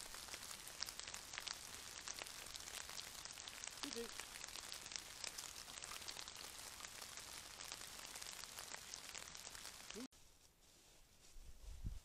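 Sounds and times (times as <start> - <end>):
light rain on leaves: 0.0 - 11.3.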